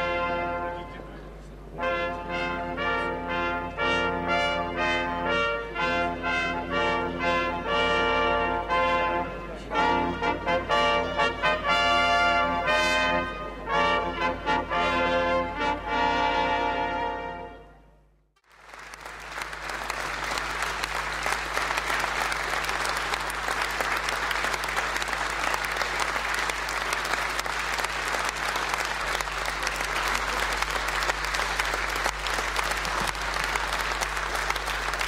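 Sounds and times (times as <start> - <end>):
audience applauding: 18.4 - 35.0.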